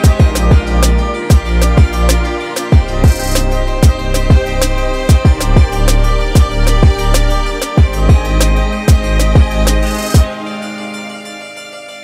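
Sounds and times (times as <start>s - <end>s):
deep kick drum: 0.0s - 2.1s, 2.7s - 9.6s
sustained chords: 0.0s - 12.0s.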